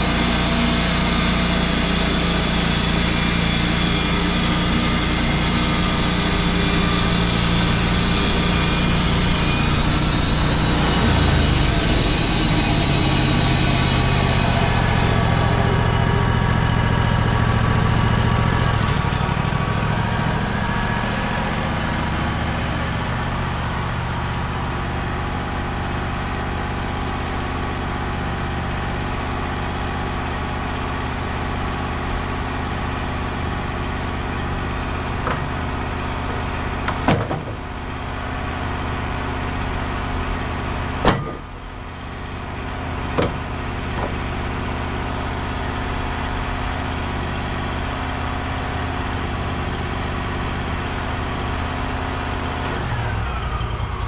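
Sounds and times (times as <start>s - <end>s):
saw cutting through log: 0.0s - 54.0s
sawmill engine running: 0.0s - 54.0s
sharp knocks: 36.3s - 37.6s, 41.0s - 41.6s, 43.2s - 44.2s.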